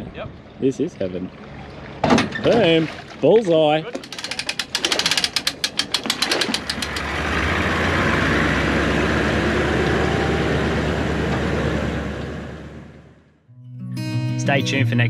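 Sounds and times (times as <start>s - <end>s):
outboard motor running: 1.1s - 12.9s
engine cranking clicks: 3.9s - 7.4s.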